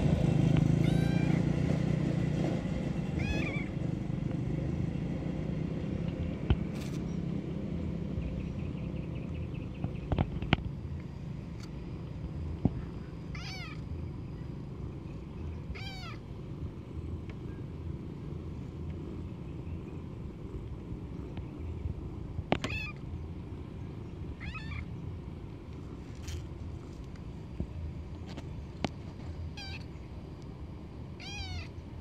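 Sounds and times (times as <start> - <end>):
low background rumble: 0.0 - 32.0
kitten mewing: 0.8 - 1.5, 3.2 - 3.7, 13.3 - 13.9, 15.7 - 16.2, 22.6 - 23.0, 29.6 - 29.9, 31.2 - 31.7.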